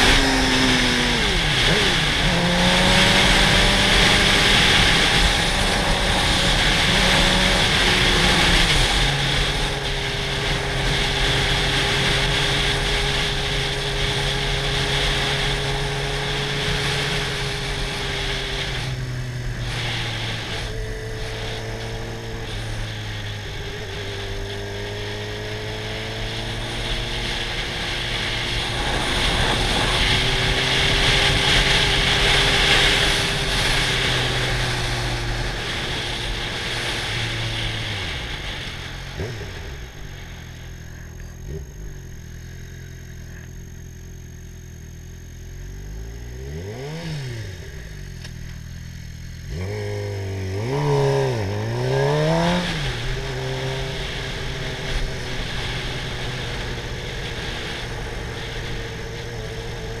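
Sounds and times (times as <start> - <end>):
wind rushing over microphone: 0.0 - 40.4
motorcycle engine revving: 0.0 - 60.0.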